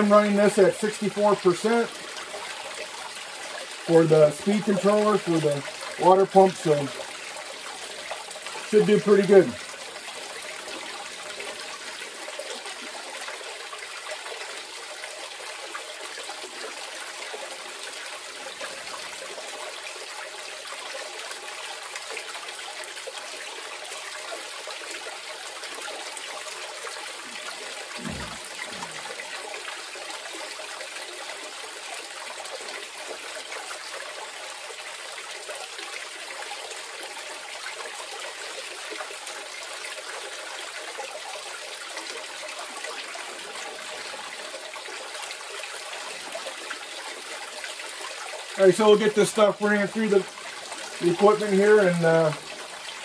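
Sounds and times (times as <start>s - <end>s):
water trickling down a sluice: 0.0s - 53.0s
low thump: 28.0s - 29.0s.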